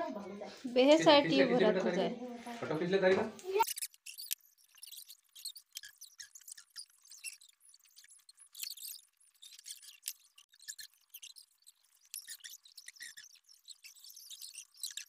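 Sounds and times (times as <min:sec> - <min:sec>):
plastic strips squeaking and scraping: 0:03.5 - 0:15.0.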